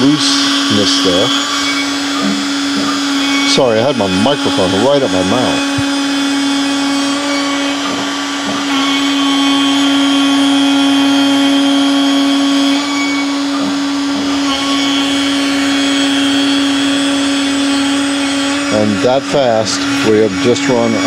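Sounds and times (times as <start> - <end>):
router bit cutting wood: 0.0 - 21.0
router motor humming: 0.0 - 21.0.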